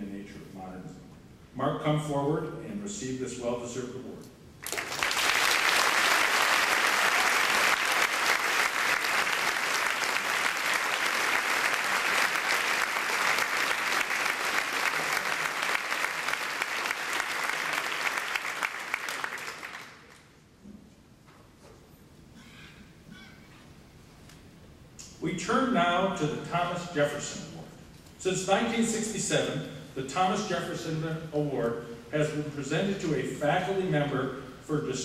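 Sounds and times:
audience applauding: 4.6s - 20.2s.

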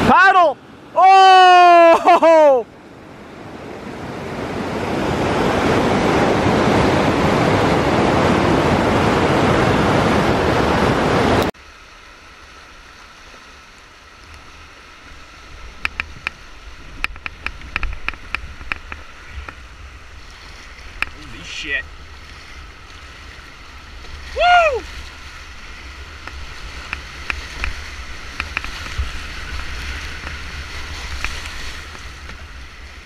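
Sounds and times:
river water running: 0.0s - 33.0s
whitewater rapids rushing: 3.4s - 33.0s
sharp knocks and clicks: 17.0s - 19.6s.

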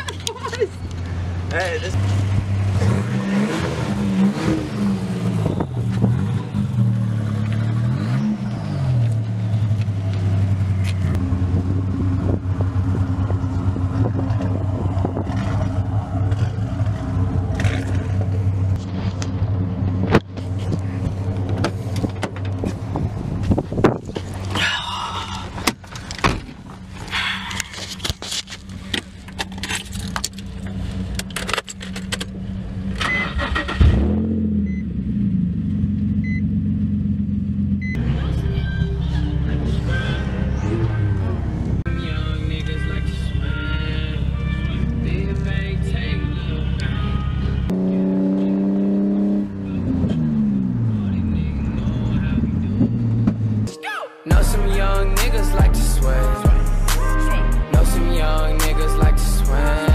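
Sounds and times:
car engine idling: 3.4s - 33.9s.

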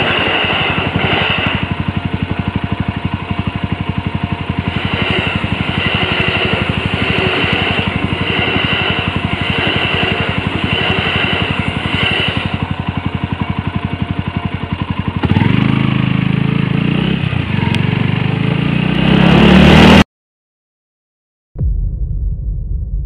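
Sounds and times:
passing train: 0.0s - 16.3s
motorcycle engine idling and revving: 0.0s - 20.0s.

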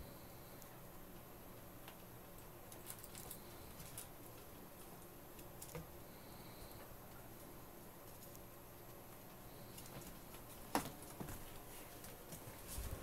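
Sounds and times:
ferrets scampering on carpet: 6.6s - 13.0s.

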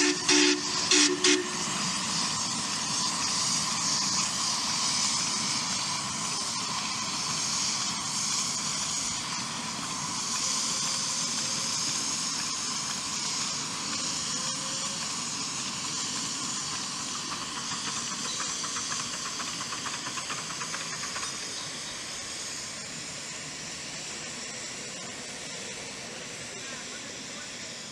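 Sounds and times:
steam whistle toot: 0.0s - 1.9s
steam hissing: 0.0s - 27.9s.

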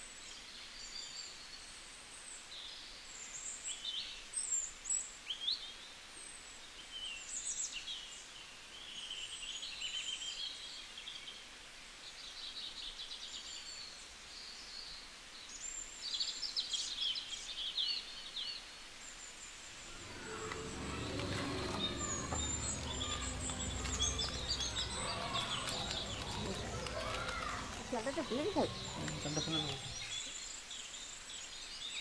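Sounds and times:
small birds chirping: 19.7s - 31.0s
low rumble: 19.8s - 30.2s.

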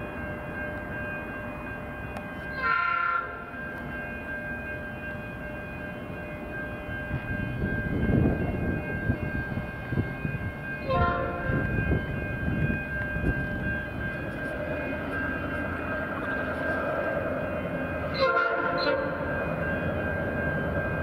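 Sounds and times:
locomotive air horn chord: 2.5s - 3.4s, 10.8s - 11.6s, 18.1s - 19.2s.

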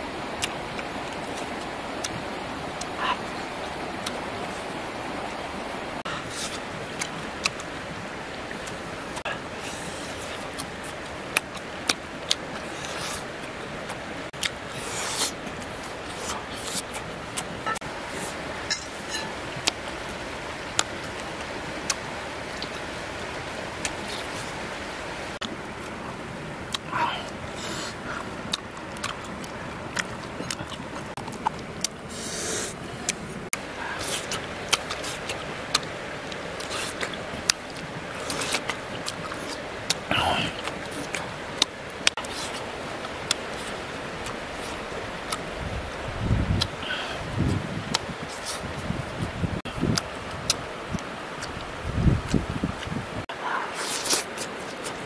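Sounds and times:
flowing river water: 0.0s - 55.0s
wet mouth clicks chewing: 28.5s - 33.3s, 36.6s - 42.6s, 43.3s - 45.4s, 46.6s - 46.8s, 49.8s - 52.9s, 53.8s - 55.0s.

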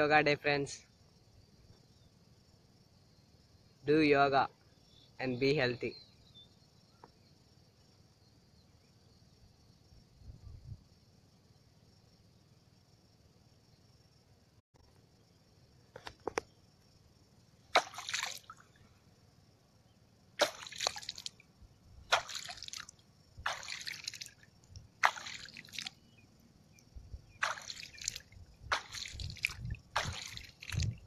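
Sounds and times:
water sloshing splashes: 17.7s - 18.8s, 20.4s - 21.4s, 22.0s - 26.2s, 27.2s - 31.0s.

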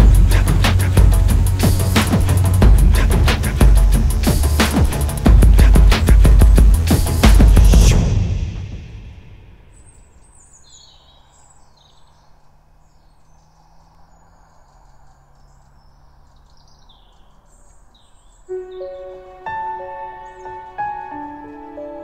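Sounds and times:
music: 0.0s - 9.6s, 18.5s - 22.0s
drum hit: 0.0s - 9.7s
birds chirping: 0.0s - 22.0s.

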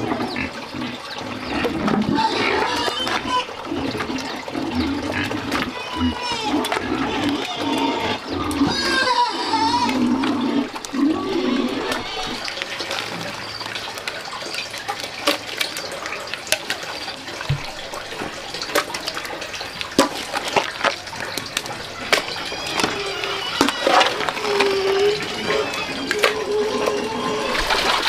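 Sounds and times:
mash bubbling and popping: 9.8s - 28.0s.

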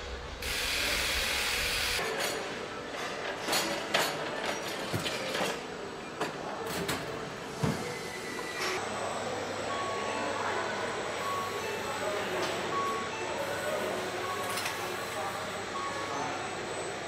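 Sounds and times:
steady factory hiss: 0.0s - 2.0s.

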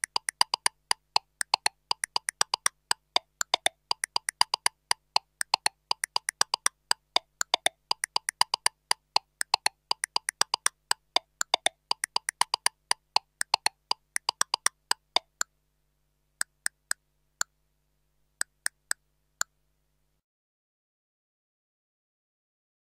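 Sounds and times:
metronome clicks: 0.0s - 15.5s, 16.4s - 17.6s, 18.4s - 19.0s.

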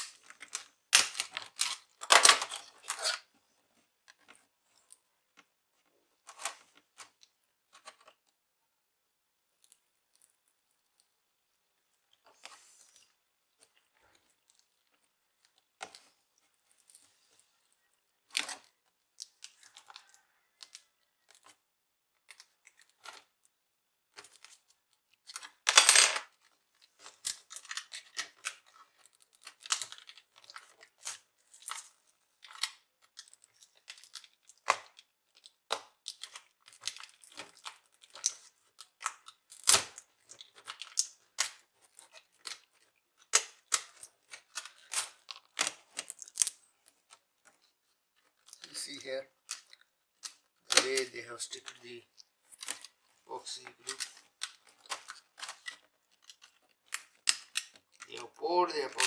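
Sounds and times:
clicks and cracks of prying plastic: 0.0s - 3.2s, 24.1s - 47.6s, 48.2s - 51.0s, 53.6s - 58.2s.

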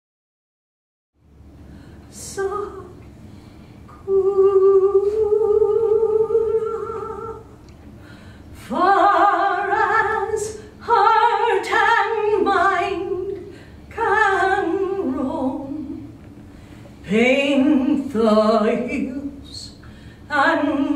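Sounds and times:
woman singing unaccompanied: 2.2s - 3.0s, 4.0s - 7.5s, 8.6s - 16.1s, 17.0s - 20.9s.

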